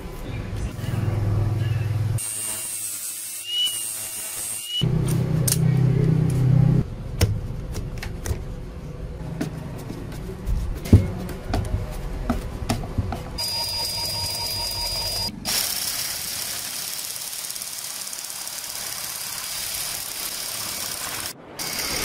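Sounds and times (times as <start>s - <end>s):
drill shears cutting sheet metal: 2.2s - 4.8s, 14.6s - 22.0s.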